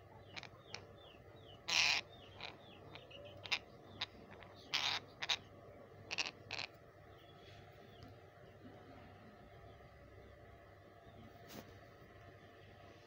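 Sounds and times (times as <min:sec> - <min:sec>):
faint bird chirps: 0:00.0 - 0:13.0
parakeet squawking: 0:00.2 - 0:06.8.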